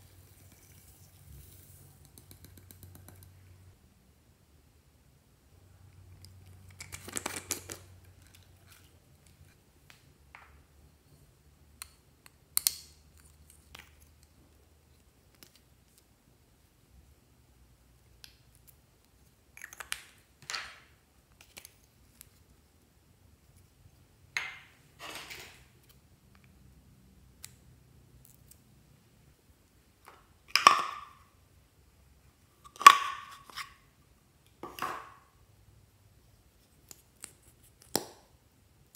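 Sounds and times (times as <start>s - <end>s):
plastic lids clicking and popping: 30.0s - 31.2s.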